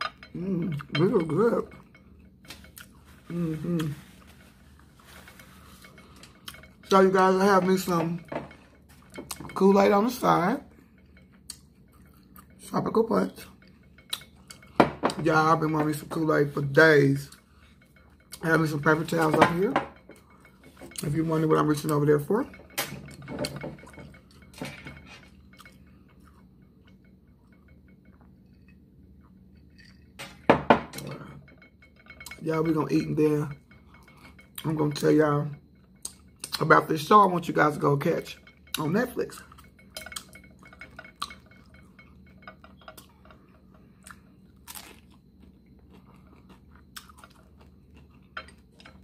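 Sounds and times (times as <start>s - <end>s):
glassware and dishes clinking: 0.0s - 28.8s, 29.6s - 44.2s, 46.4s - 49.0s
chewing crunchy tacos: 43.8s - 49.0s.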